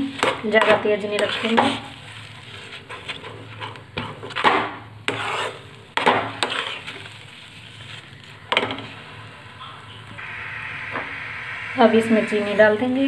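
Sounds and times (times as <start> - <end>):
metal spoon scraping a pan: 0.2 - 4.4, 5.0 - 8.8.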